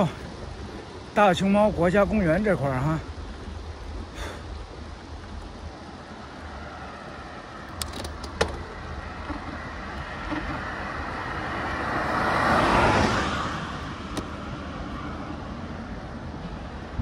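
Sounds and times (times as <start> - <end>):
pickup truck passing: 5.0 - 17.0.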